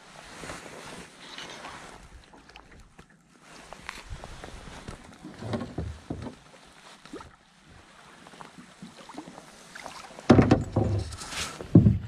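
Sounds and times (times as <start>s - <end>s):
water lapping against boat: 0.3s - 12.0s
small knocks on boat: 5.4s - 6.4s, 10.3s - 12.0s.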